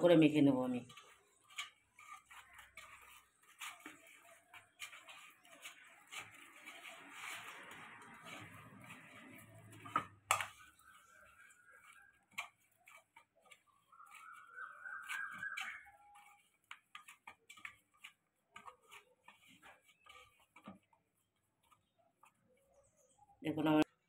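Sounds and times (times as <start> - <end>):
faint whistle-like tone: 13.9 - 16.2.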